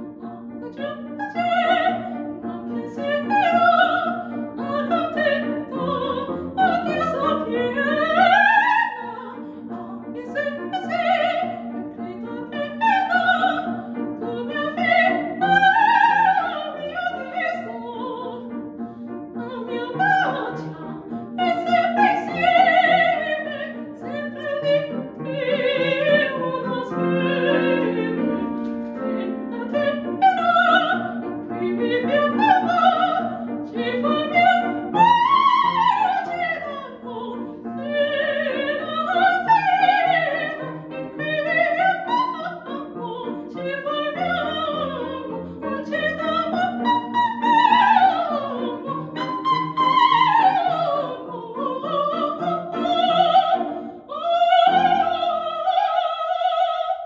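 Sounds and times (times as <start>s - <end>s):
soprano singing opera: 0.0s - 18.6s, 19.3s - 57.0s
piano accompaniment: 0.0s - 57.0s.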